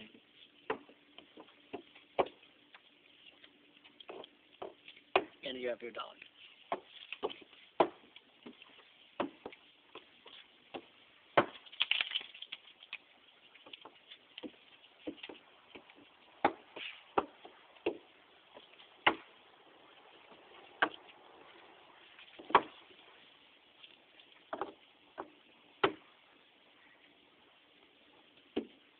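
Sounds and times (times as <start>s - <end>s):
hoof boots clopping: 0.6s - 5.4s, 6.2s - 11.6s, 13.5s - 26.1s.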